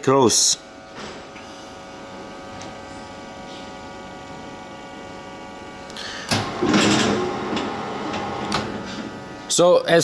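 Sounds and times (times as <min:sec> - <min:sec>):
machine humming: 0:00.0 - 0:10.0.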